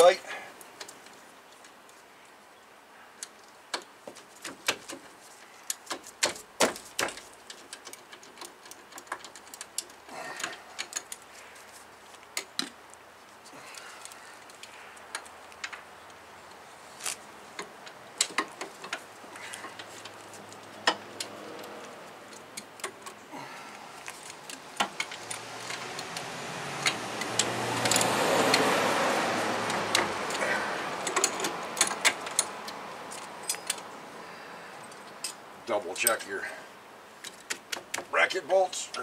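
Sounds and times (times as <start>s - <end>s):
metal tools clinking: 29.7s - 34.0s.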